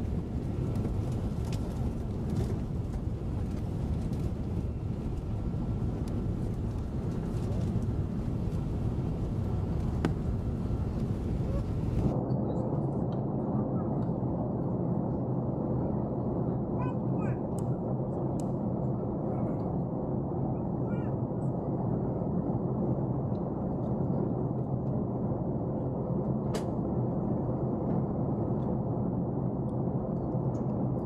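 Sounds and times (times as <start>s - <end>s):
jet engines roaring: 0.0s - 12.2s.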